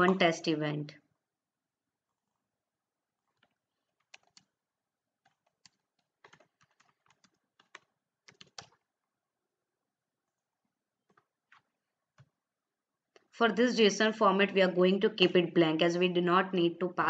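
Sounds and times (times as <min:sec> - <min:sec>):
computer keyboard typing: 0:03.2 - 0:04.6, 0:05.2 - 0:08.9, 0:11.0 - 0:12.4.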